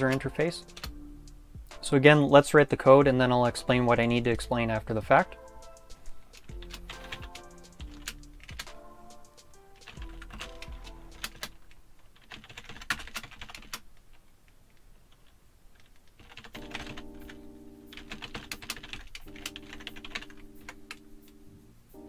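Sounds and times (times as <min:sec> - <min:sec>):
typing on keyboard: 0:05.5 - 0:11.6, 0:12.2 - 0:13.8, 0:15.1 - 0:21.4.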